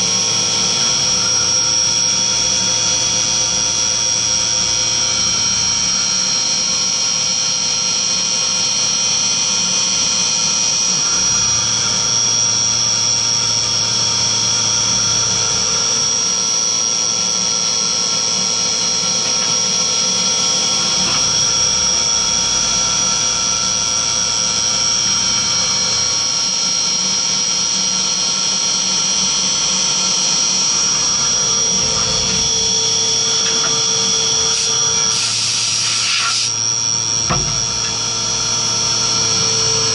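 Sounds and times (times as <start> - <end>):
milling machine spindle whine: 0.0 - 39.9
metal cutting noise: 30.3 - 39.4.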